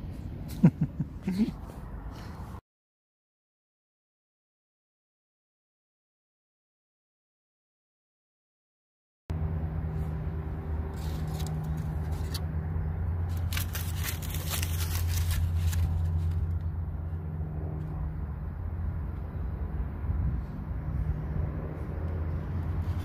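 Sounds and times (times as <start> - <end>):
steady low rumble: 9.3 - 23.0
aluminium foil crinkling: 13.3 - 16.6.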